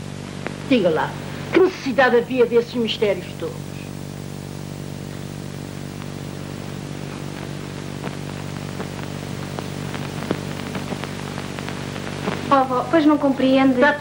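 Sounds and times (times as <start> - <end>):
film soundtrack hiss and hum: 0.0 - 14.0
clicks and crackles: 0.2 - 0.7, 4.9 - 12.6.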